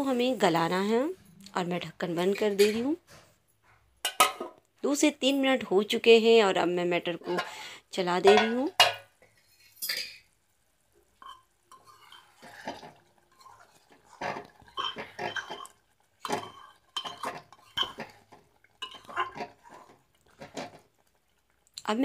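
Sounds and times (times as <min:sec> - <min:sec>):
spoon scraping metal pot: 0:07.2 - 0:07.7, 0:11.2 - 0:21.2.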